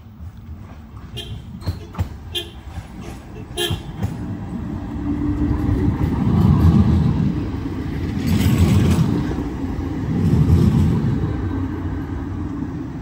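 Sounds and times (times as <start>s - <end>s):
tram wheels rumbling on rail: 0.0s - 13.0s.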